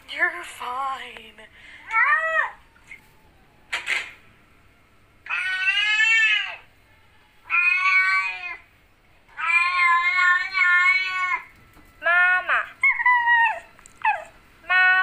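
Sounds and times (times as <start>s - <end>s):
cat meowing: 5.2s - 6.7s, 7.4s - 8.7s, 9.3s - 11.5s.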